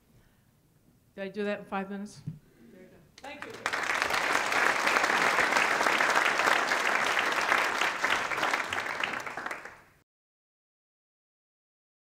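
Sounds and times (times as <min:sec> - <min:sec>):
audience applauding: 0:03.2 - 0:10.0.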